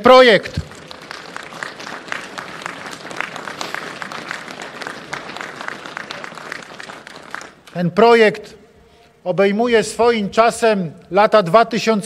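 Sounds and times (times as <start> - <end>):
audience applauding: 0.4 - 7.7.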